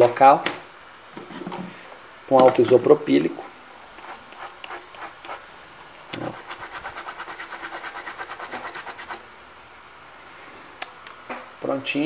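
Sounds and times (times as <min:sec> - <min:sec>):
small brush scrubbing circuit board: 0:04.0 - 0:05.5, 0:06.1 - 0:09.2.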